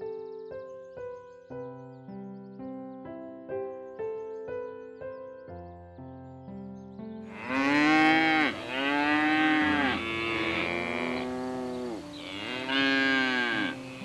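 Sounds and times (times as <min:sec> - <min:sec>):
soft piano music: 0:00.0 - 0:14.0
cow mooing: 0:07.3 - 0:14.0.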